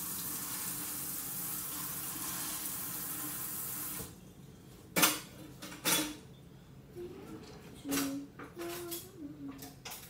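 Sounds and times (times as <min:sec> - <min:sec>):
tap water running: 0:00.0 - 0:04.2.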